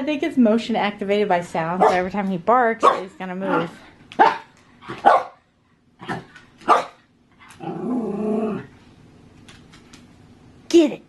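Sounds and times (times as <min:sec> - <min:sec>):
small dog barking: 0:02.8 - 0:03.6, 0:04.2 - 0:05.4, 0:06.6 - 0:07.0.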